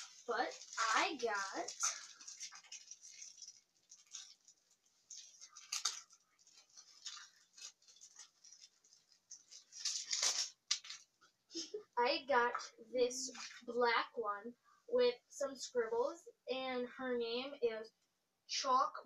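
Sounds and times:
packaging rustling and crinkling: 0.0 - 11.4.

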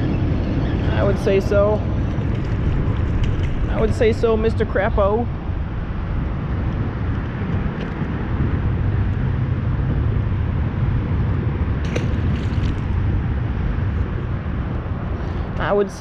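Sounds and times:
low outdoor rumble: 0.0 - 16.0
fish splashing into water: 11.8 - 13.1.

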